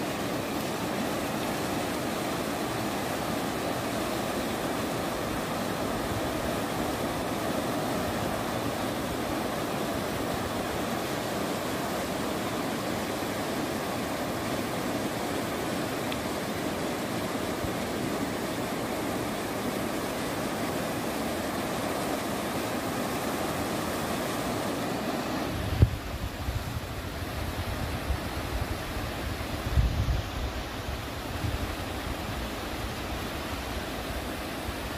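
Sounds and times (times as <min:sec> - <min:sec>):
river rushing: 0:00.0 - 0:34.9
wind buffeting microphone: 0:25.5 - 0:32.4.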